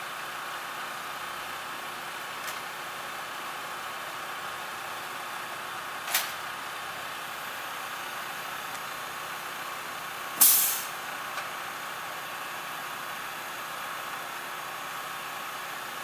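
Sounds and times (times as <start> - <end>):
truck engine running: 0.0 - 16.0
compressed air hissing: 10.4 - 10.9.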